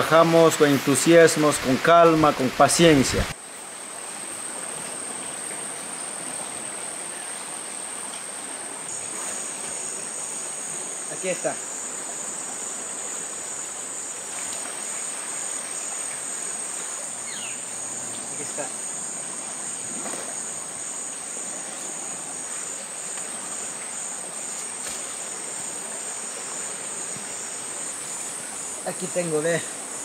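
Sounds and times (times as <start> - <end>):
forest insects chorus: 0.0 - 30.0.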